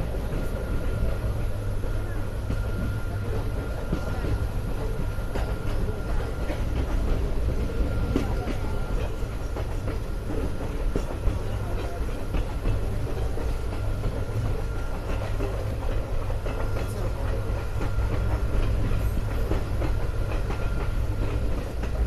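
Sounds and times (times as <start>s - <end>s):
train wheels rumbling on rails: 0.0s - 22.0s
clicks and clacks from coaches: 3.8s - 22.0s.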